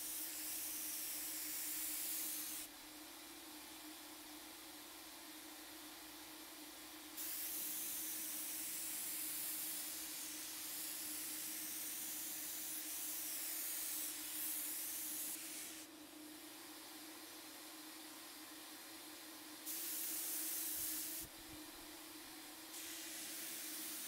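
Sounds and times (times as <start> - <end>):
spray gun hissing paint: 0.0 - 2.7, 7.2 - 15.9, 19.6 - 21.3, 22.7 - 24.0.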